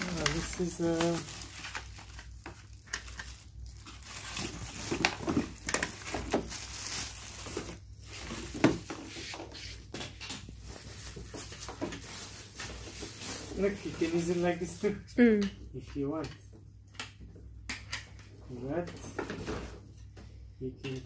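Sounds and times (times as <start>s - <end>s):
plastic wrapping crinkling: 0.0s - 9.5s, 10.6s - 14.7s.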